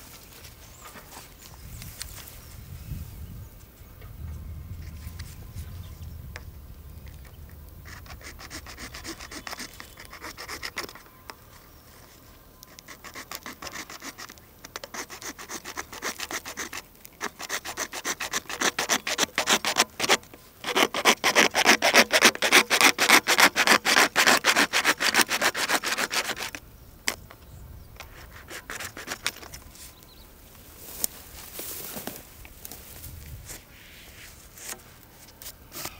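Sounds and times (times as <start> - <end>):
hand saw cutting pipe: 7.9 - 11.0, 12.8 - 26.6, 28.0 - 29.6.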